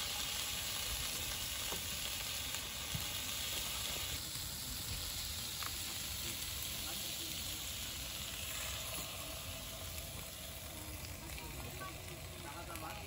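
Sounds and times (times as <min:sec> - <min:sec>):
small crackles: 0:00.0 - 0:07.0
onions sizzling in pan: 0:00.0 - 0:13.0.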